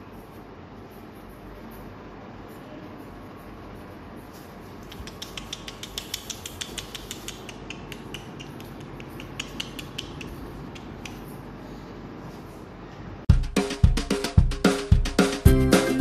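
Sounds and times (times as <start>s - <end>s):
scissors snipping hair: 4.8s - 11.4s.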